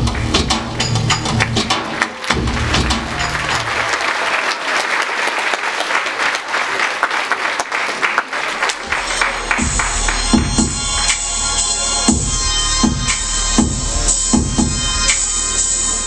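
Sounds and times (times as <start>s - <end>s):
dance music: 0.0s - 4.2s, 8.5s - 16.0s
audience applauding: 0.1s - 11.2s.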